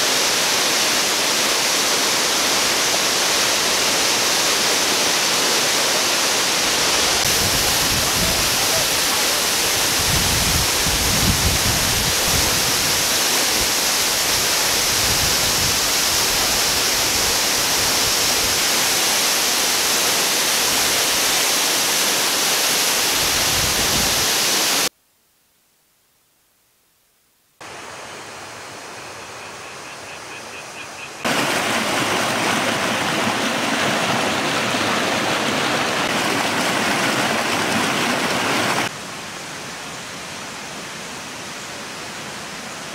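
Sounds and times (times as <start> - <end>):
waterfall rushing onto rocks: 0.0 - 24.9, 31.2 - 42.9.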